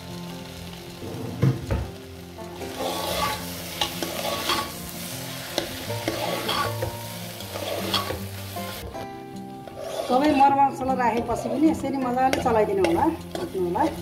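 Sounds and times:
lentils sizzling in oil: 0.0 - 14.0
spoon scraping pan: 2.8 - 4.8, 5.6 - 8.2, 9.7 - 10.6.

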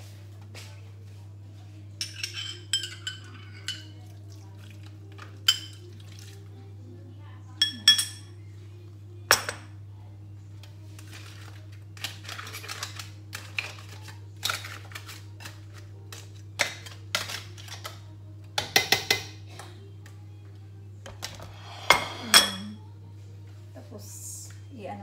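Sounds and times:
metal ladle scraping a pot: 21.4 - 22.4.

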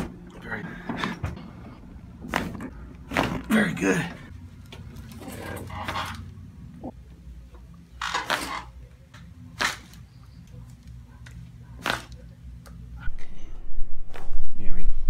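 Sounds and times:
low hum: 10.1 - 15.0.

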